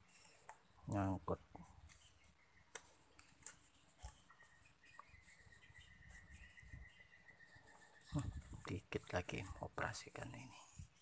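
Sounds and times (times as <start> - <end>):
paper clicks and rustles: 1.8 - 5.4.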